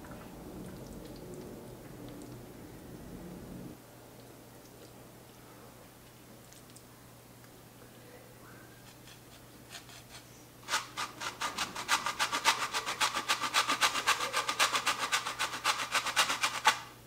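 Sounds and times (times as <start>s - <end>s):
cheese grating on metal grater: 8.8s - 16.9s.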